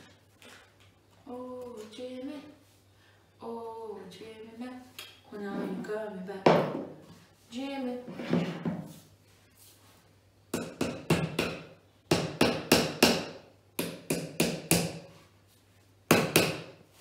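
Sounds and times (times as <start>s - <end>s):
hammer tapping wooden dowels: 10.5s - 15.0s, 16.1s - 16.7s.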